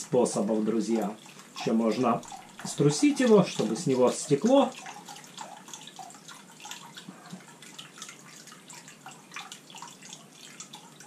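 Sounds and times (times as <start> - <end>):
liquid dripping into a bucket: 0.0 - 11.0.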